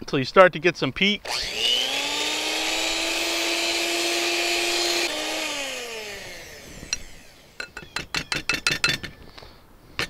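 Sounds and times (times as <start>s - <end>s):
electric hand mixer whining: 1.2s - 8.1s.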